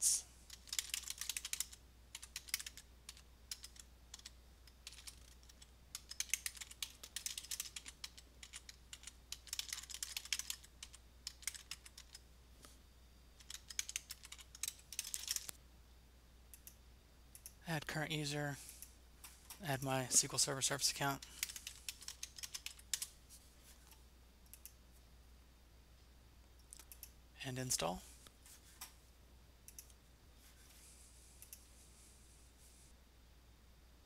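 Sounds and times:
computer keyboard typing: 0:00.5 - 0:12.2, 0:13.4 - 0:15.5, 0:21.2 - 0:23.1.

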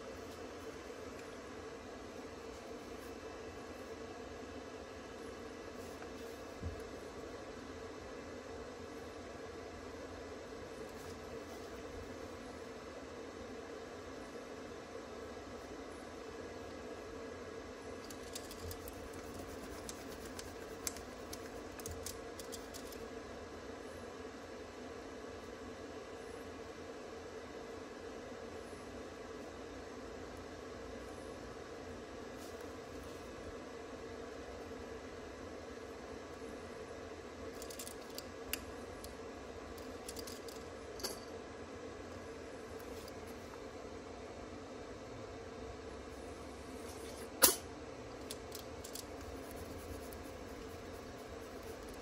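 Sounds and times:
low room hum: 0:00.0 - 0:52.0
pen scratching on paper: 0:18.2 - 0:23.0.

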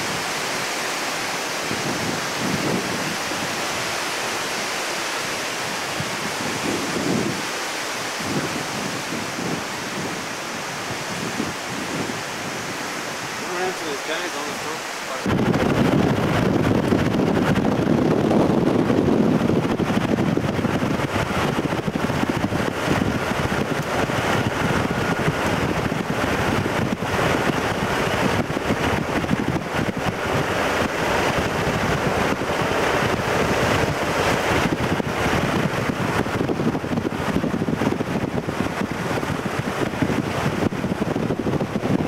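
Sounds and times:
wind buffeting microphone: 0:00.0 - 0:42.0
low rumble of thunder: 0:15.3 - 0:42.0.

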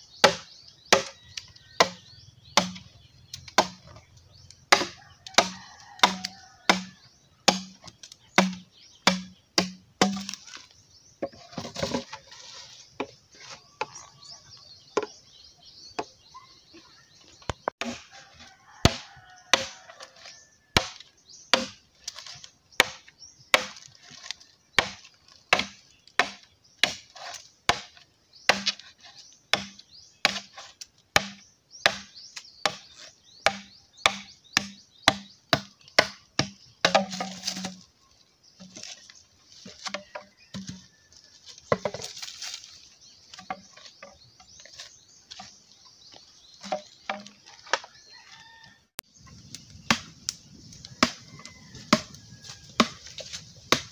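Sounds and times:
machete chopping bamboo: 0:00.2 - 0:03.9, 0:04.7 - 0:10.6, 0:17.8 - 0:18.1, 0:18.8 - 0:19.9, 0:20.7 - 0:37.8, 0:39.6 - 0:40.9, 0:41.7 - 0:42.6, 0:43.3 - 0:44.2, 0:46.6 - 0:47.9, 0:49.9 - 0:50.4, 0:51.0 - 0:51.2, 0:51.8 - 0:52.2, 0:52.8 - 0:53.9.

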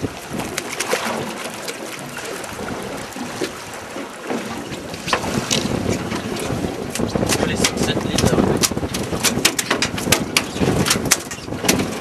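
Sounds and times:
wind noise on microphone: 0:00.0 - 0:01.3, 0:04.6 - 0:12.0.

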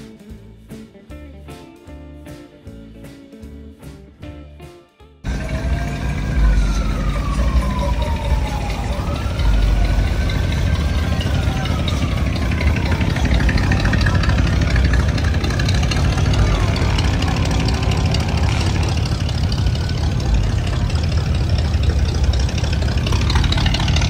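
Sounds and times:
car engines idling: 0:05.2 - 0:24.0.

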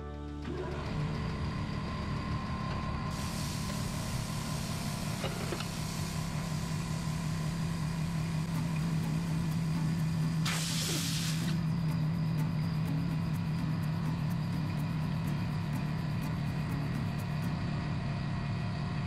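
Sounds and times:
low hum of shop machinery: 0:00.0 - 0:19.0
compressed air hissing into tyre: 0:03.1 - 0:13.0.

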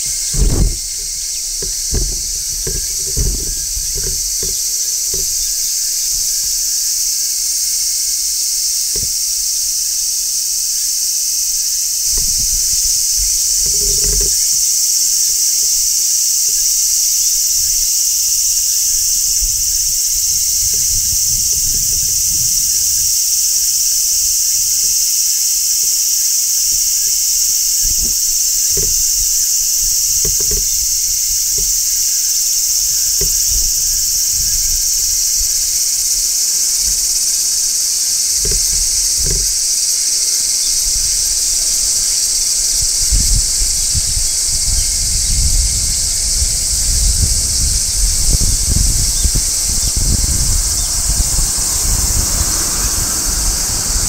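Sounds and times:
faint low thuds: 0:00.0 - 0:07.0, 0:26.7 - 0:39.9
cicadas shrilling: 0:00.0 - 0:54.0.

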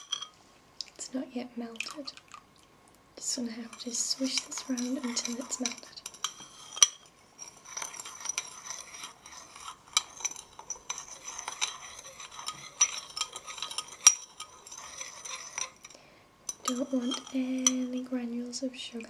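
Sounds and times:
metal spoon clinking in ceramic bowl: 0:00.0 - 0:00.4, 0:03.4 - 0:18.1.

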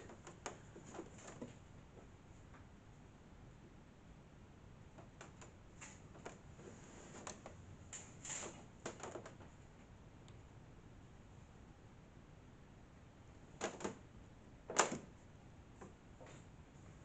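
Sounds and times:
curtain rustling: 0:05.4 - 0:09.4.

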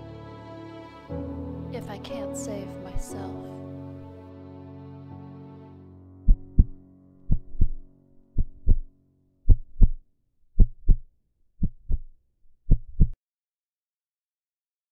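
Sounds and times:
heartbeat thumps: 0:06.3 - 0:07.8, 0:08.4 - 0:08.9, 0:09.5 - 0:10.0, 0:10.6 - 0:11.0, 0:11.6 - 0:12.1, 0:12.7 - 0:13.2.

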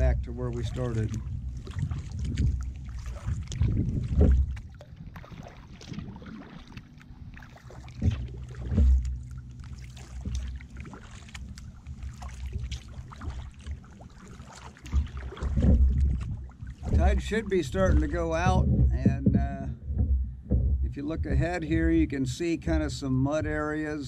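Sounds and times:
low thumps: 0:00.0 - 0:05.2, 0:07.8 - 0:14.0, 0:14.7 - 0:24.0
small splashes: 0:00.0 - 0:19.3
paddle dipping and dripping: 0:00.0 - 0:24.0.

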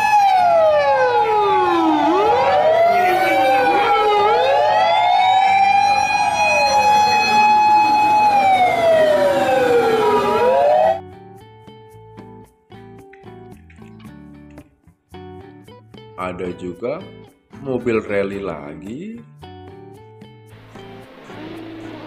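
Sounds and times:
fire engine sirens wailing: 0:00.0 - 0:11.0.

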